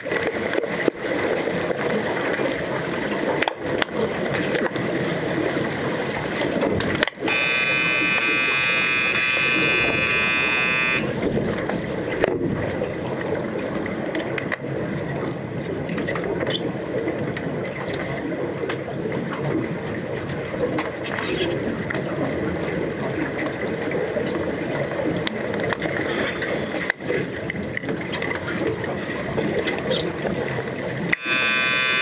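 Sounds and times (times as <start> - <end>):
muffled underwater churn: 0.0 - 32.0
underwater buzzer drone: 7.2 - 11.2, 31.1 - 32.0.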